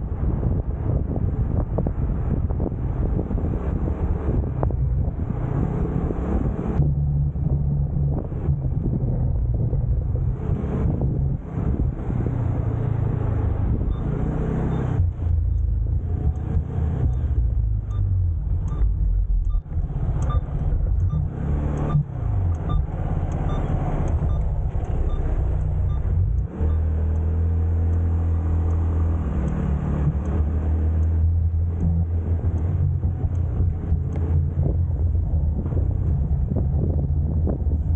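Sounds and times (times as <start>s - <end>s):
faint regular beep: 13.8s - 15.7s, 17.1s - 26.9s.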